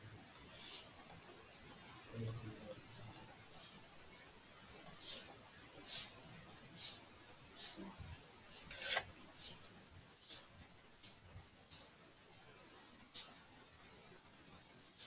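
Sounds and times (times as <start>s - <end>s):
stylus scratching on tablet: 7.6s - 10.5s.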